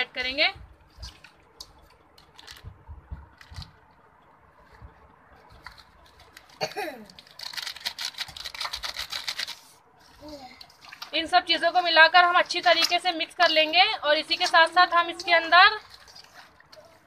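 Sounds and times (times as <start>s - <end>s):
plastic packet crinkling: 2.2s - 2.7s, 5.6s - 9.8s.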